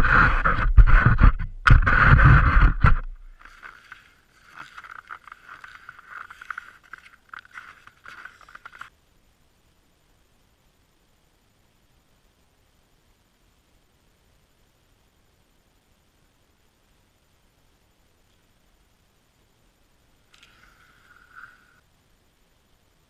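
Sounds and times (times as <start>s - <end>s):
skis scraping over snow: 0.0s - 8.9s.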